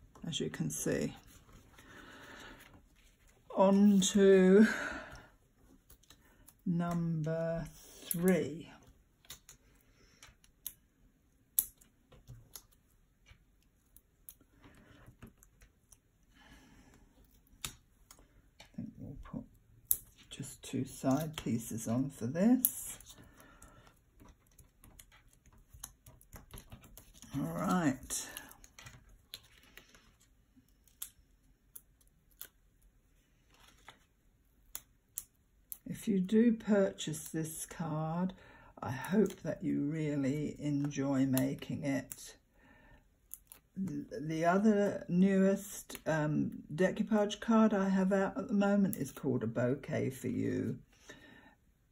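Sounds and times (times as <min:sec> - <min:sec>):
hands tapping and rustling card: 0:22.6 - 0:30.3.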